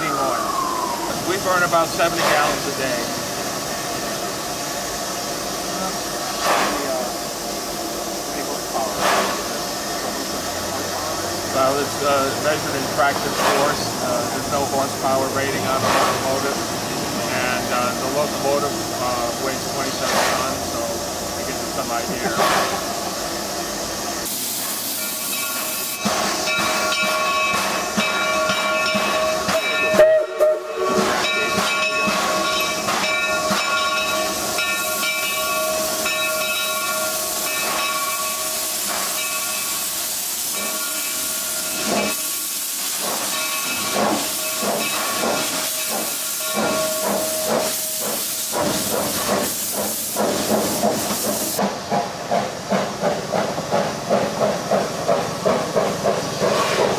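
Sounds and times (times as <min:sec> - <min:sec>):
steam locomotive hissing steam: 0:00.0 - 0:56.9
steady whistling tone: 0:00.1 - 0:01.7.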